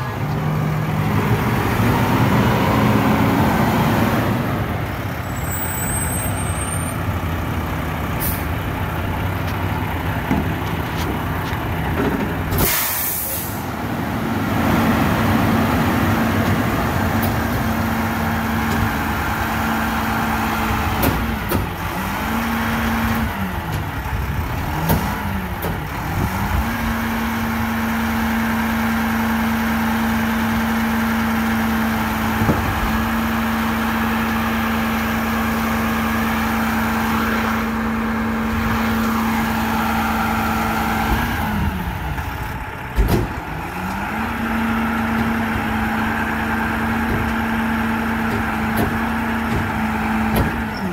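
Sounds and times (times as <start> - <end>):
diesel truck engine running: 0.0 - 50.9
air brakes hissing: 12.5 - 13.7.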